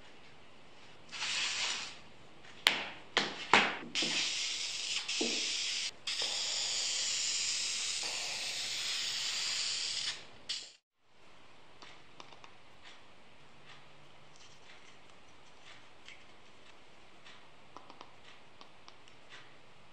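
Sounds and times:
aerosol spray can hissing: 1.1s - 2.0s, 4.0s - 10.8s
sharp clicks and knocks: 17.2s - 19.5s.

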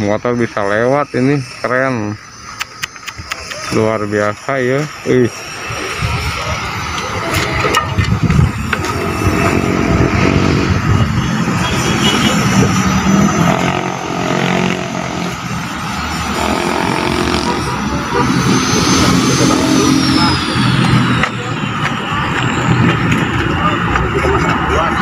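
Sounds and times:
motorcycles and cars passing: 5.4s - 25.0s.

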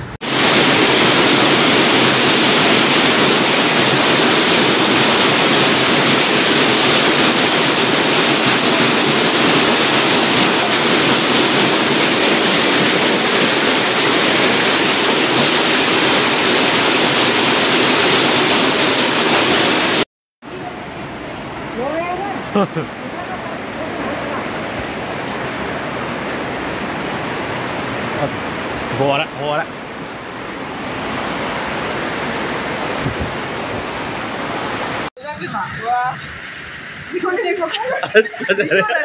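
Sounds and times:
heavy hail on pavement: 0.2s - 20.0s.

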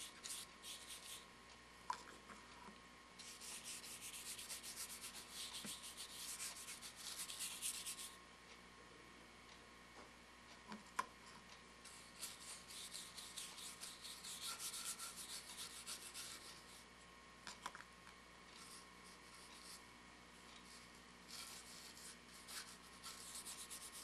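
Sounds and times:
hand sanding strokes: 0.0s - 1.2s, 3.2s - 8.1s, 11.9s - 16.8s, 21.3s - 24.0s.

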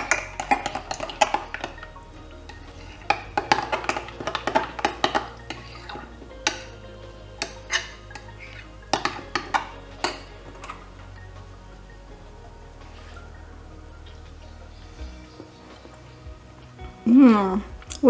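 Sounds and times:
spoon clinking against glass bowl: 0.0s - 6.8s, 7.4s - 10.9s.

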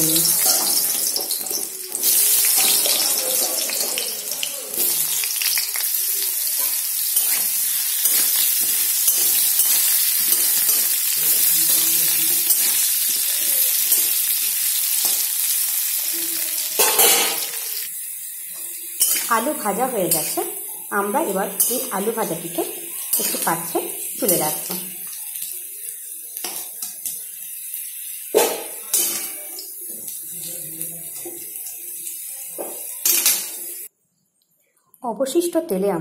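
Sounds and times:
potatoes sizzling in oil: 0.0s - 33.9s
metal spatula scraping: 4.7s - 14.2s.

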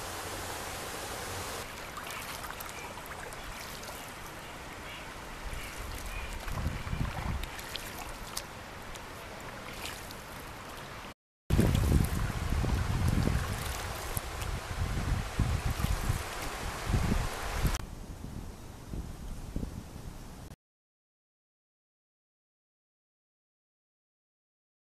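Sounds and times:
river water rushing: 0.0s - 17.8s
wind buffeting microphone: 5.5s - 7.6s, 11.5s - 20.5s.

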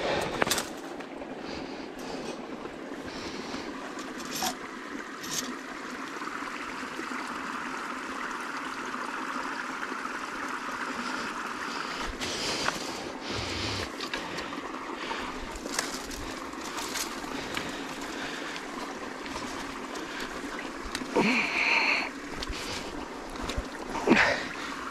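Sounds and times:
shallow water trickling and sloshing: 0.0s - 24.9s
water splashing: 11.0s - 24.9s.

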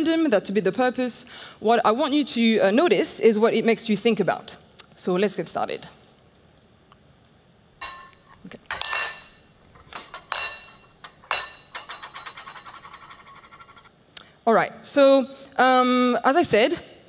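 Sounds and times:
cutlery clinking over loudspeakers: 7.8s - 9.4s, 10.0s - 13.8s.

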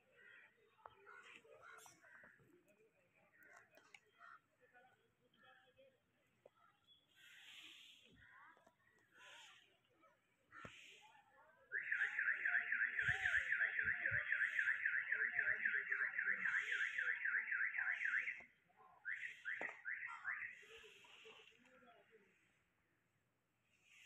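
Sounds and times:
car alarm warbling: 11.7s - 20.6s.

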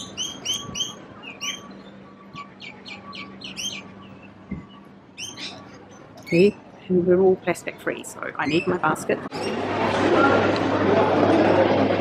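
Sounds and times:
small birds chirping: 0.0s - 6.6s.

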